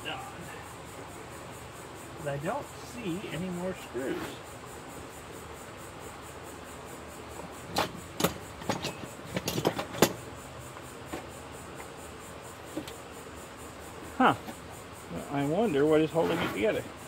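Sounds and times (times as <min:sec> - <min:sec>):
metallic clicks and knocks: 0:07.7 - 0:10.2.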